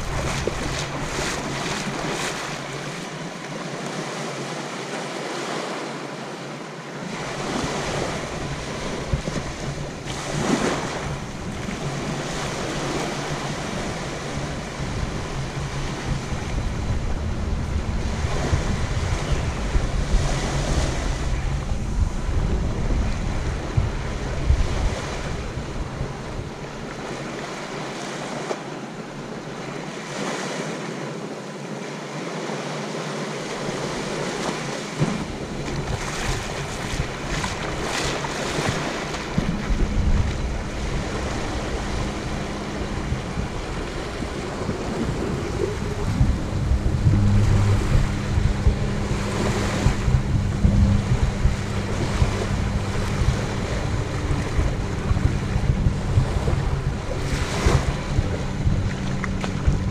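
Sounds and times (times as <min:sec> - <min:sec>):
wind rumbling on microphone: 0:00.0 - 0:04.5, 0:07.0 - 0:30.4, 0:33.4 - 0:59.9
sea waves washing onto beach: 0:00.0 - 0:59.9.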